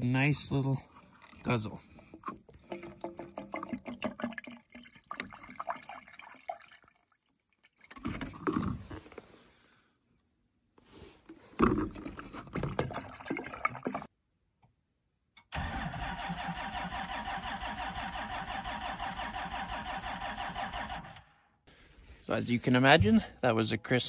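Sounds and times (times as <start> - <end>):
bottle knocking and handling: 2.2 - 4.6
diesel engine cranking: 15.5 - 21.3.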